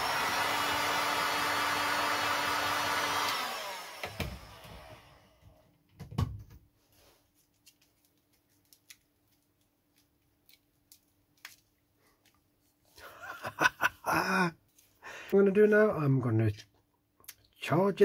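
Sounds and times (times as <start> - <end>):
heat gun blower winding down: 0.0 - 5.4.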